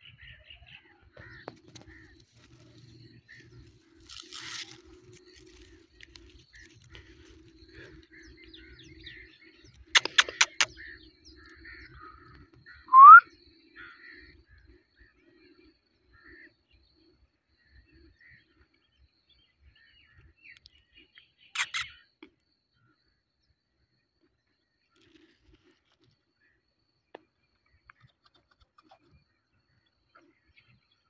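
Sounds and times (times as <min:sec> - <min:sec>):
soft chirps: 0:02.4 - 0:13.3, 0:20.5 - 0:22.4
sharp clicks: 0:10.0 - 0:10.7
parrot whistling: 0:12.9 - 0:13.2.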